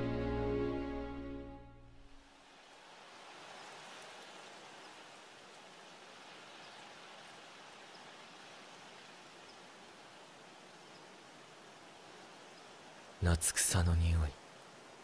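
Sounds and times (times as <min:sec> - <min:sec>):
wind rustling through grass: 0:02.1 - 0:13.2.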